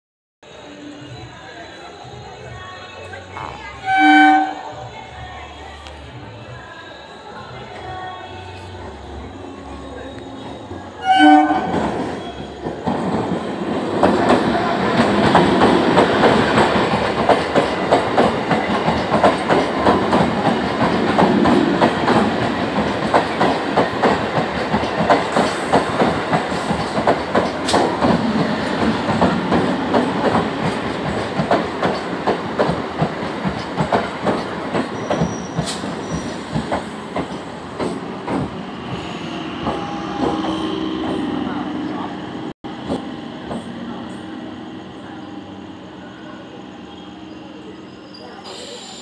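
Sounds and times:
train wheels clattering on rails: 0:11.7 - 0:41.3.

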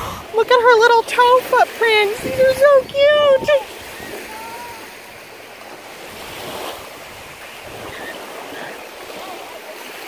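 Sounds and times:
wind buffeting microphone: 0:00.0 - 0:04.9
waves washing onto beach: 0:00.0 - 0:10.0.

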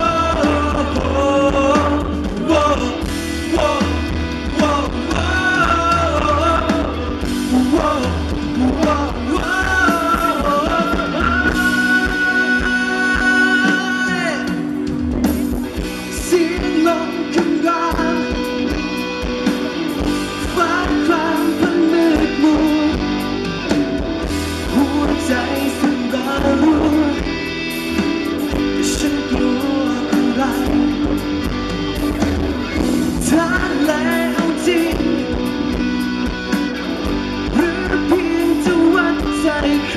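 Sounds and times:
man singing into a microphone: 0:00.0 - 0:14.9, 0:16.0 - 0:18.8, 0:20.3 - 0:23.2, 0:24.4 - 0:27.7, 0:28.5 - 0:31.2, 0:33.0 - 0:35.7, 0:37.4 - 0:39.9
bass guitar: 0:00.0 - 0:39.9
drums: 0:00.0 - 0:39.9
electric guitar: 0:00.0 - 0:39.9.

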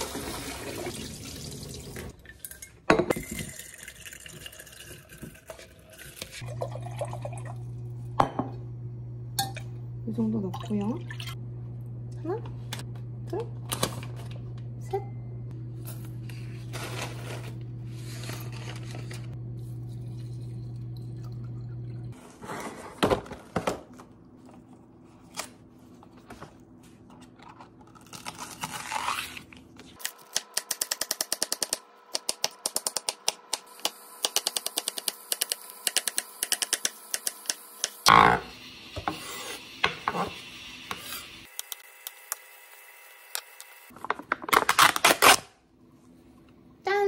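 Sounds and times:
low hum: 0:06.8 - 0:22.2.

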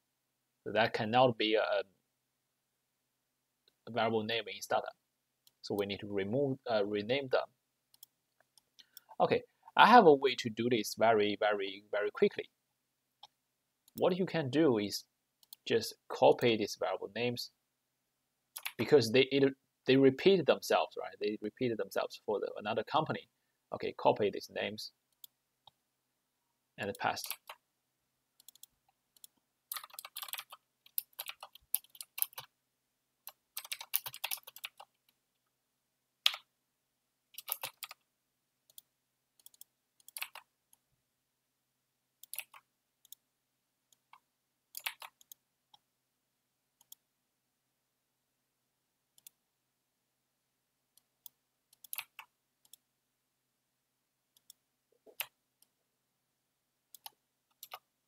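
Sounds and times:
keyboard typing: 0:18.6 - 0:18.8, 0:27.1 - 0:27.6, 0:28.4 - 0:32.5, 0:33.3 - 0:35.0, 0:36.2 - 0:36.5, 0:37.4 - 0:38.0, 0:38.7 - 0:40.5, 0:42.2 - 0:43.2, 0:44.0 - 0:45.4, 0:51.8 - 0:52.8, 0:56.9 - 0:57.9
mouse clicks: 0:28.4 - 0:32.5, 0:36.2 - 0:36.5, 0:51.0 - 0:52.8, 0:54.4 - 0:55.7, 0:56.9 - 0:57.8.

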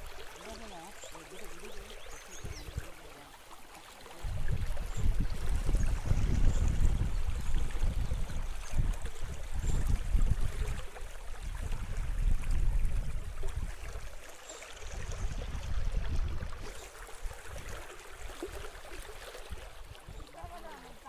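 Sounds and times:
wind buffeting microphone: 0:02.2 - 0:02.9, 0:04.2 - 0:14.2, 0:14.8 - 0:18.6.

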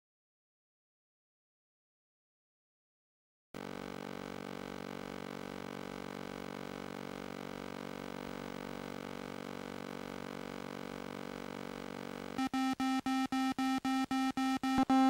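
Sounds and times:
rapid electronic beeps: 0:12.2 - 0:15.0.

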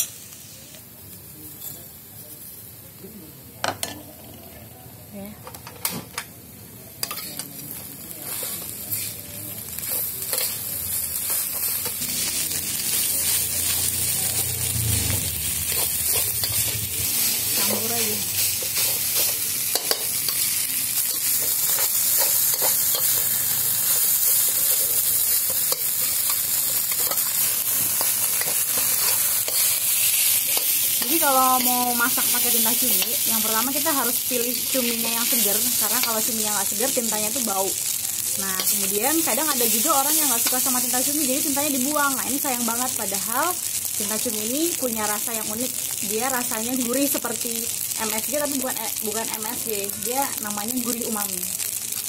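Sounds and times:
rice sizzling in a wok: 0:00.0 - 0:52.0
metal spatula scraping wok: 0:08.2 - 0:36.3.

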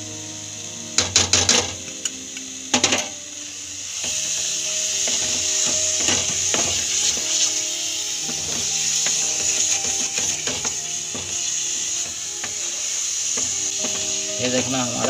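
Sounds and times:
faint background music: 0:00.0 - 0:15.0
wooden spatula scraping pan: 0:08.3 - 0:15.0.

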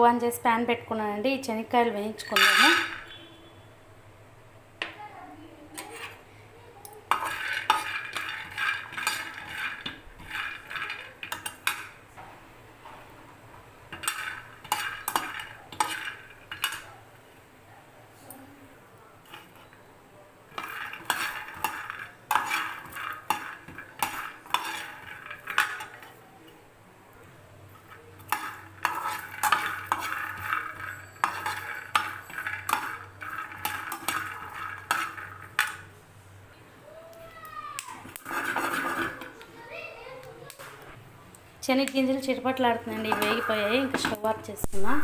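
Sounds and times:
spoon scraping a pan: 0:02.2 - 0:03.6, 0:05.7 - 0:06.3, 0:07.1 - 0:12.0, 0:13.9 - 0:16.9, 0:19.2 - 0:19.8, 0:20.5 - 0:26.6, 0:27.6 - 0:36.0, 0:38.0 - 0:39.4, 0:41.8 - 0:45.0
peanuts crackling: 0:06.9 - 0:12.0, 0:20.5 - 0:26.3, 0:27.6 - 0:36.0, 0:37.2 - 0:39.5, 0:41.8 - 0:45.0.

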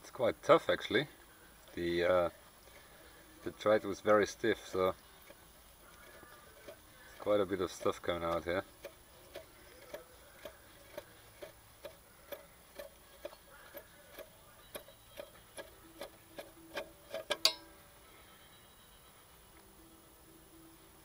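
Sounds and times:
tap wrench clicking: 0:16.8 - 0:17.6.

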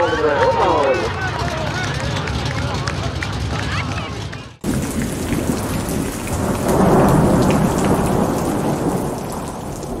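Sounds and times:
steady rain: 0:04.6 - 0:10.0
thunder rolling: 0:04.6 - 0:10.0.

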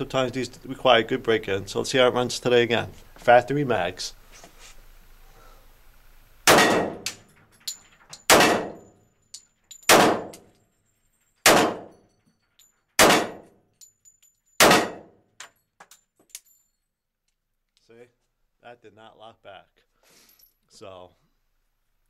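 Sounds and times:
pistol shots ringing: 0:06.5 - 0:07.2, 0:08.2 - 0:09.0, 0:09.8 - 0:10.5, 0:11.4 - 0:12.0, 0:13.0 - 0:13.6, 0:14.6 - 0:15.2.

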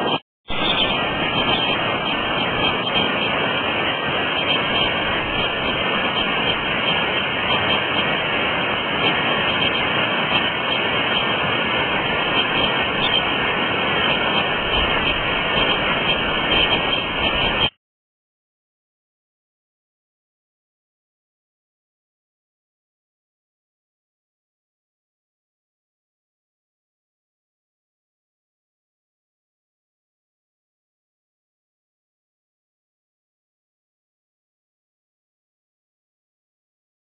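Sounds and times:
creek water rushing: 0:00.5 - 0:17.7.

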